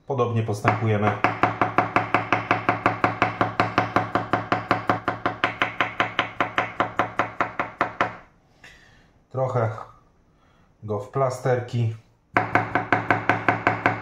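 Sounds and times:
knife chopping on wooden board: 0.7 - 8.2, 12.4 - 14.0.

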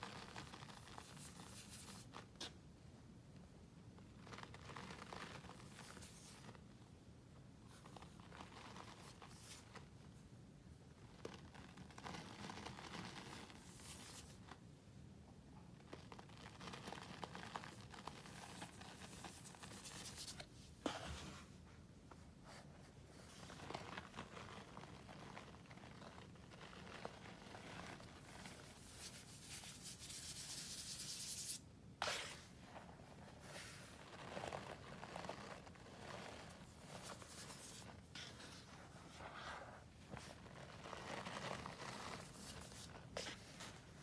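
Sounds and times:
powder scratching and crunching: 0.0 - 2.1, 11.1 - 14.4, 23.2 - 38.7, 40.1 - 43.8.

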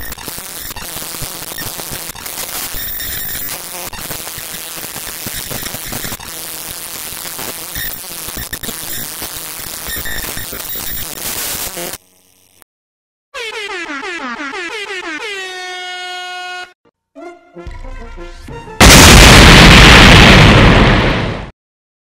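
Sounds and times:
harsh distorted noise: 0.0 - 12.6, 18.8 - 21.5.

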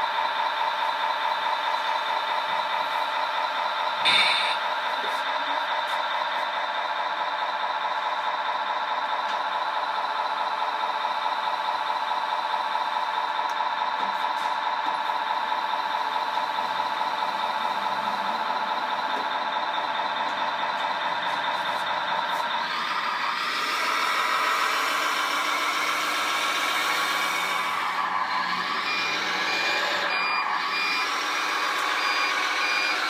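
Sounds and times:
hydraulic electric whine: 22.7 - 33.0.

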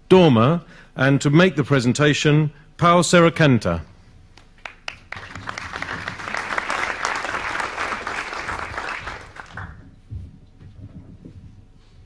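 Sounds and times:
audience applauding: 4.6 - 9.9.

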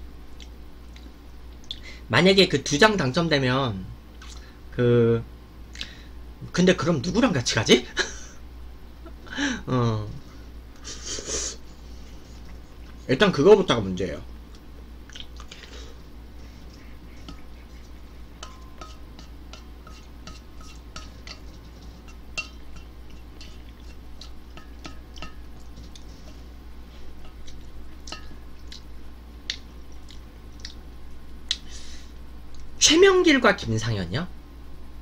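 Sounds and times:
utensils scraping in metal pot: 16.6 - 27.5
pot ringing faintly: 18.3 - 23.6, 24.2 - 25.7, 28.1 - 28.6.

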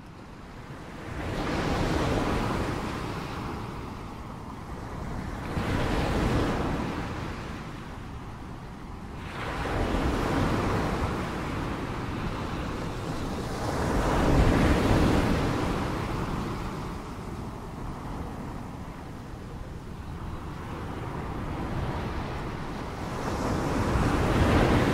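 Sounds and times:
ocean waves washing in: 0.8 - 24.9.

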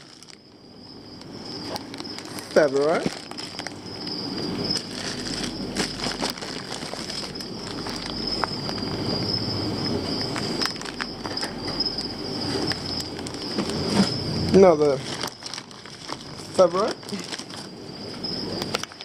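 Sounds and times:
plastic bags crinkling: 0.0 - 0.5, 1.2 - 19.0
steady high-pitched whine: 0.0 - 19.0
small crackles and clicks: 4.7 - 9.0, 18.6 - 19.0.

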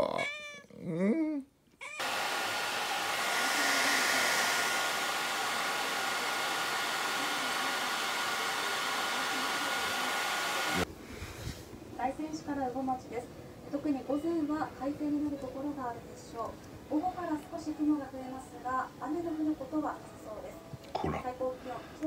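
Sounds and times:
hair dryer blowing: 2.0 - 10.9.

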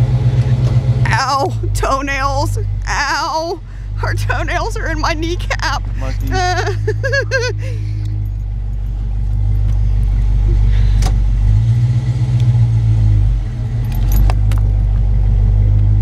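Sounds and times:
car engine drone: 0.0 - 16.0
road noise: 0.0 - 16.0
light jingling clicks: 8.0 - 10.1, 13.8 - 14.7.

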